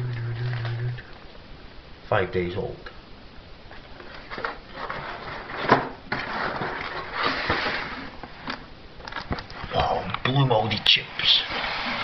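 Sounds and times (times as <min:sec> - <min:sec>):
scraping rustle: 0:04.0 - 0:08.5.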